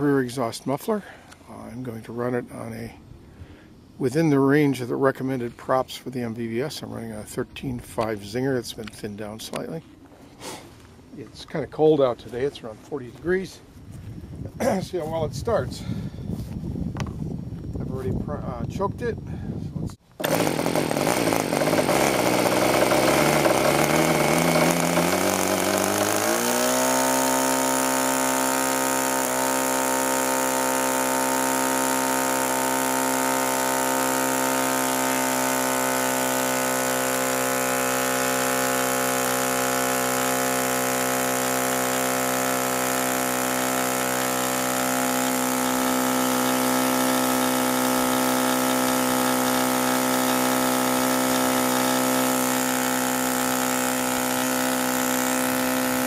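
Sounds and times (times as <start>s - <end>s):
model airplane engine running: 20.2s - 56.0s.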